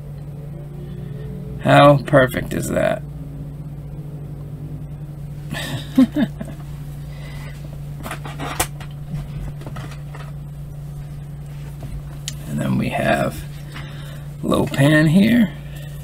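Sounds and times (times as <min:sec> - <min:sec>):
low electrical hum: 0:00.0 - 0:16.0
rustle of handling: 0:06.6 - 0:12.4.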